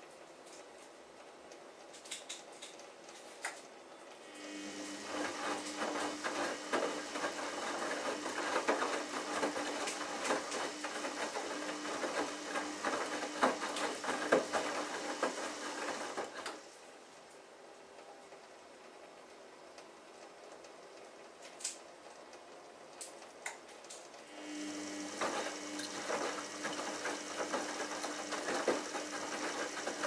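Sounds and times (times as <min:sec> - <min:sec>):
washing machine motor: 0:04.2 - 0:16.7, 0:24.2 - 0:30.0.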